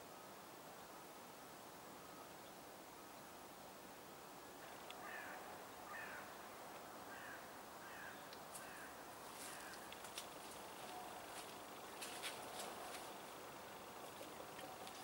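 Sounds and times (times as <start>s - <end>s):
faint bird calling: 4.6s - 6.4s, 7.1s - 10.0s.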